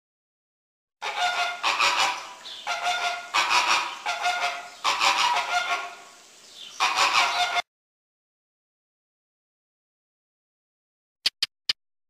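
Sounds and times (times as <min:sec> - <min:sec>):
flamingos honking: 0:01.0 - 0:07.7.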